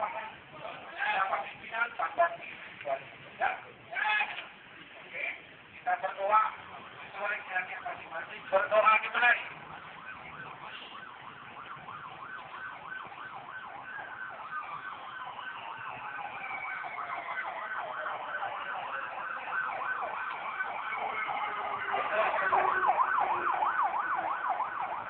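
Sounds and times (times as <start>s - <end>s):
electronic siren yelping: 9.5s - 25.0s
slower falling siren tone: 10.0s - 25.0s.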